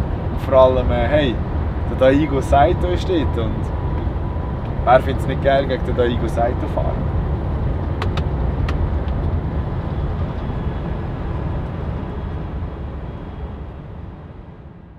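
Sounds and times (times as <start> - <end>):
engine and road rumble in cabin: 0.0 - 14.9.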